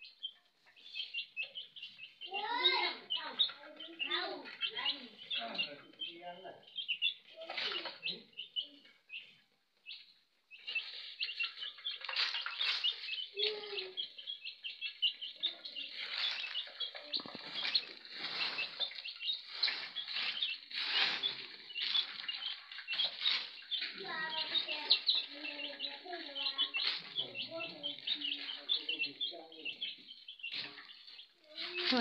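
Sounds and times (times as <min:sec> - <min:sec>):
chicks peeping: 0:00.0 - 0:32.0
scratchy rustling: 0:10.7 - 0:29.0.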